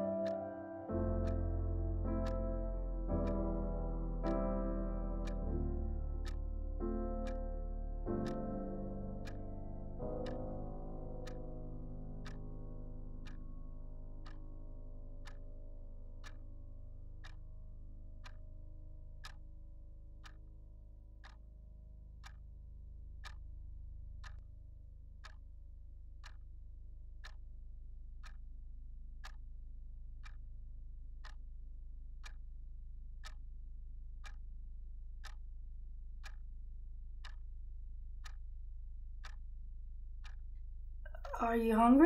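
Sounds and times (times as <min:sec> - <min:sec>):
clock ticking: 0:00.0 - 0:13.4, 0:14.2 - 0:14.5, 0:15.2 - 0:15.5, 0:16.2 - 0:16.4, 0:17.2 - 0:17.4, 0:18.2 - 0:18.4, 0:19.2 - 0:19.4, 0:20.2 - 0:20.5, 0:22.2 - 0:22.4, 0:23.2 - 0:23.4, 0:24.2 - 0:24.4, 0:26.2 - 0:26.4, 0:27.2 - 0:27.4, 0:28.2 - 0:28.4, 0:29.2 - 0:29.4, 0:30.2 - 0:30.4, 0:31.2 - 0:31.4, 0:32.2 - 0:32.4, 0:33.2 - 0:33.4, 0:34.2 - 0:34.5, 0:35.2 - 0:35.4, 0:36.2 - 0:36.5, 0:37.2 - 0:37.5, 0:38.2 - 0:38.5, 0:39.2 - 0:39.6, 0:40.2 - 0:40.5, 0:41.1 - 0:42.0.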